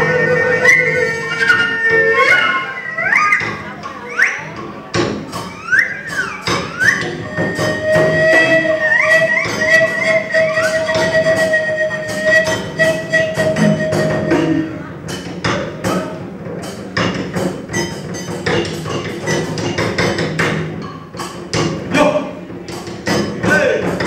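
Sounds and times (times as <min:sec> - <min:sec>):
held melodic note: 0:05.4 - 0:14.9.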